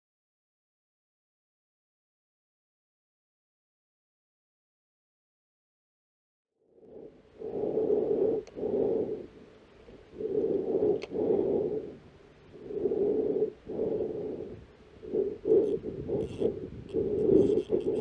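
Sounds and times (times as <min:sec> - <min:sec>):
slow heavy breathing: 0:06.8 - 0:18.0
faint clicks: 0:08.4 - 0:08.6, 0:10.9 - 0:11.2, 0:15.4 - 0:18.0.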